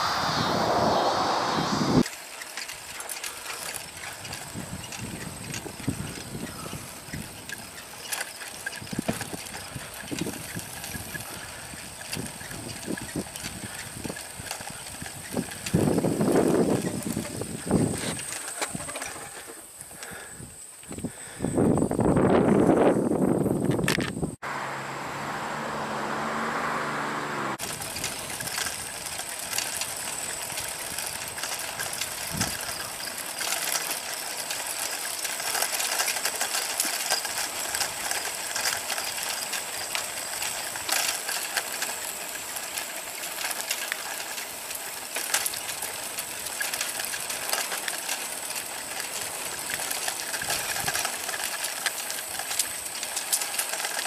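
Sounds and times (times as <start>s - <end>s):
high whine: 0.0s - 2.0s
low pitched drone: 0.0s - 2.0s
bicycle rolling on asphalt: 0.0s - 54.0s.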